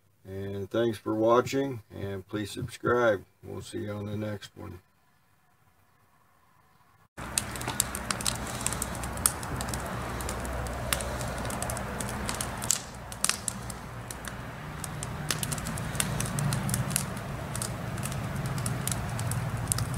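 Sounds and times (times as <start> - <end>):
campfire crackling and popping: 7.2 - 19.9.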